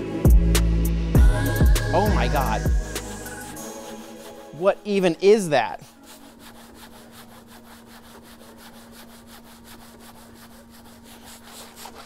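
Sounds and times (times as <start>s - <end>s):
mitt scrubbing car: 5.8s - 12.0s.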